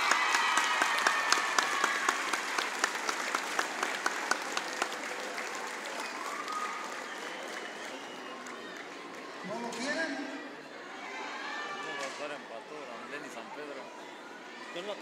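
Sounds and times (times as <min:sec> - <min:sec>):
voices cheering: 0:00.0 - 0:02.8, 0:05.6 - 0:10.2
crowd applauding: 0:00.0 - 0:09.8.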